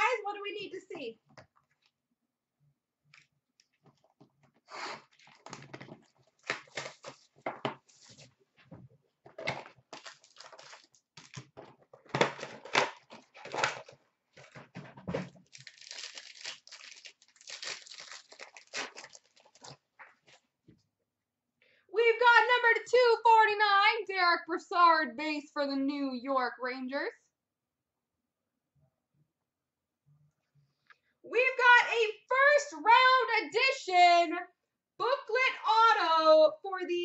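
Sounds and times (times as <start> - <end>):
plastic and foil crinkling: 5.0 - 8.3, 9.3 - 20.5.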